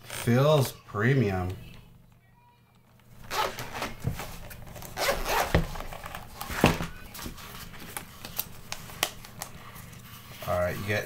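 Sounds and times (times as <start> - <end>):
case being unzipped: 3.2 - 6.7.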